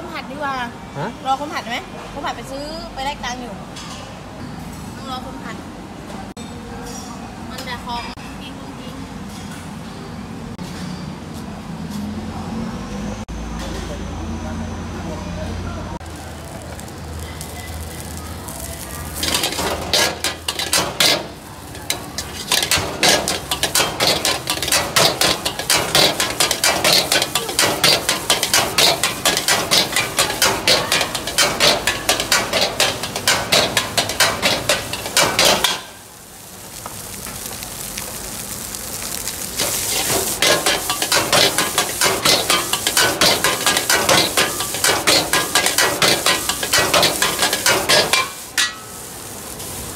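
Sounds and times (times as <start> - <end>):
food sizzling: 16.0 - 49.9
metal ladle scraping a wok: 19.1 - 36.0, 39.6 - 49.0.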